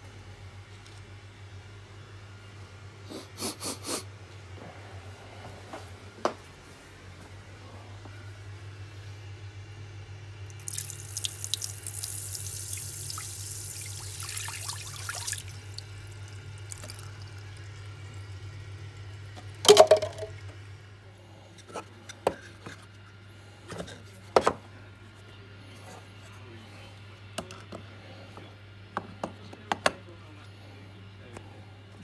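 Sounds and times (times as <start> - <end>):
steady low hum: 0.0 - 32.0
tap water running into sink: 10.5 - 15.9, 16.6 - 17.4.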